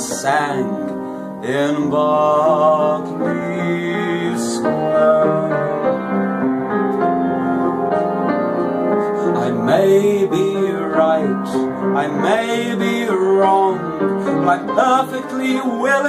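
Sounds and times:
man singing a slow ballad: 0.0s - 6.1s, 9.2s - 16.0s
piano chords: 0.0s - 16.0s.

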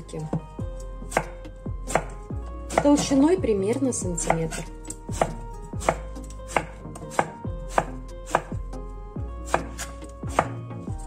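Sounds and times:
knife chopping on wooden board: 1.0s - 3.3s, 4.2s - 8.6s, 9.4s - 10.6s.

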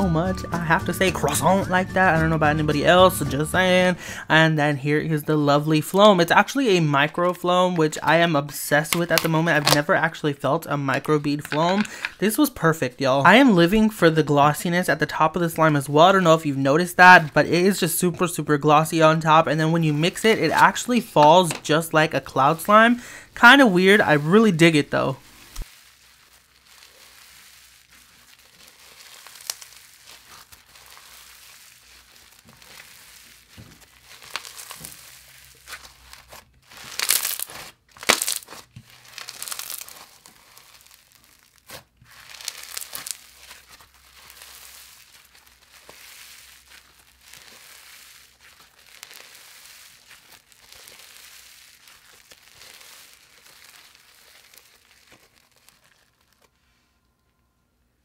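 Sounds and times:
foam beads crackling and crunching: 13.3s - 57.0s.

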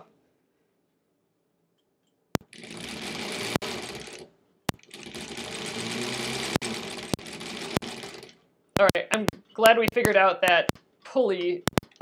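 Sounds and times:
sewing machine stitching: 2.4s - 10.1s.

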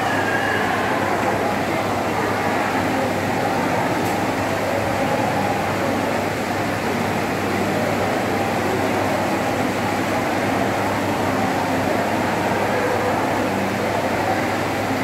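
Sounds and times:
fountain water jets splashing: 0.0s - 15.0s.

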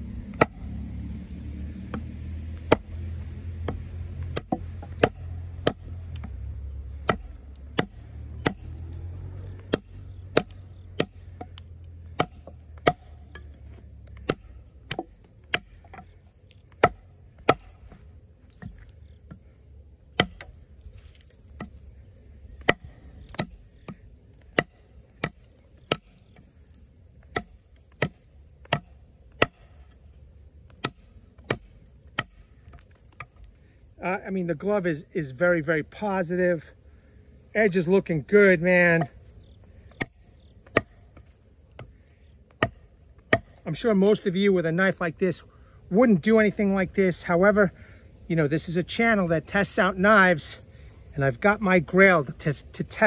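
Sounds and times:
insect chirring: 0.0s - 53.0s
knife chopping into wood: 0.3s - 0.7s, 1.8s - 9.0s, 9.6s - 16.1s, 16.7s - 19.4s, 20.1s - 21.8s, 22.6s - 26.5s, 27.2s - 29.8s, 30.7s - 33.4s, 39.9s - 41.9s, 42.5s - 43.6s.

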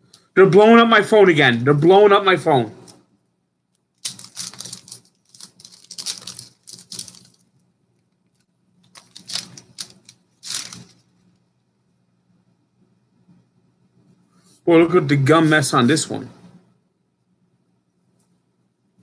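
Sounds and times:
cards shuffled in hands: 4.0s - 7.5s, 8.3s - 11.0s
paper wrapper tearing and crinkling: 4.0s - 7.5s, 8.8s - 11.1s.

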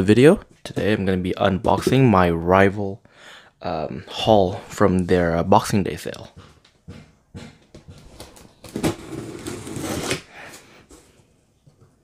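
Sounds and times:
knife slitting packing tape: 8.6s - 10.3s.

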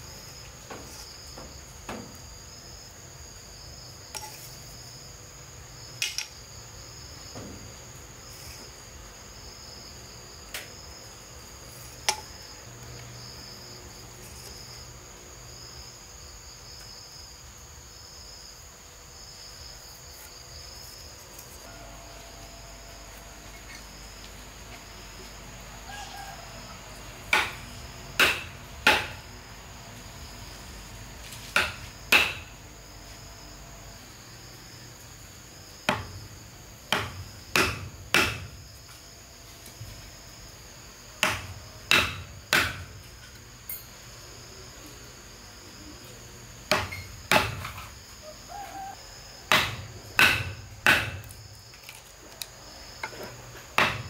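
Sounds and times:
crickets chirring: 0.0s - 54.0s
sharp knocks: 27.3s - 27.6s, 28.2s - 29.2s, 36.9s - 38.5s, 41.2s - 42.9s, 46.7s - 47.8s, 49.5s - 51.3s, 53.8s - 54.0s.

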